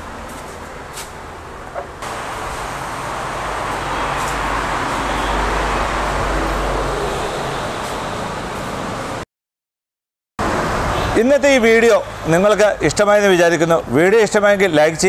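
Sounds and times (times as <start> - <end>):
traffic rushing: 0.0 - 9.2, 10.4 - 15.0
vehicle passing with deep rumble: 0.0 - 9.2.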